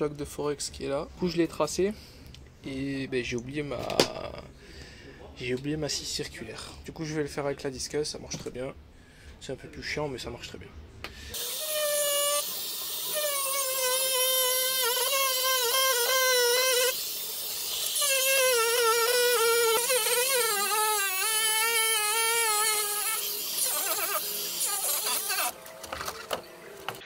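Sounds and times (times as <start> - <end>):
angle grinder cutting board: 11.3 - 26.2.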